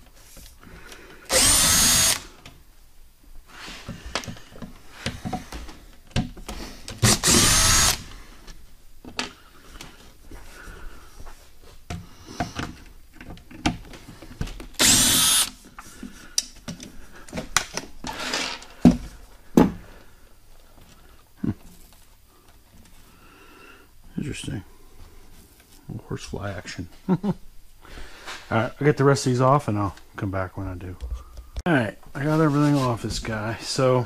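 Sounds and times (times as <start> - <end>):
cordless drill whining: 1.3 - 2.3, 7.0 - 8.2, 14.8 - 15.5.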